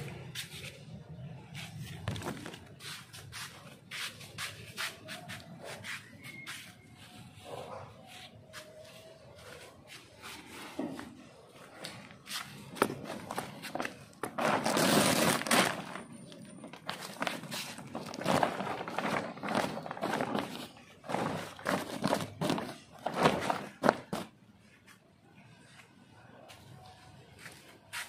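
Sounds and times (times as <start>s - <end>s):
plastic bag rustling: 1.7s - 5.6s, 11.7s - 24.4s.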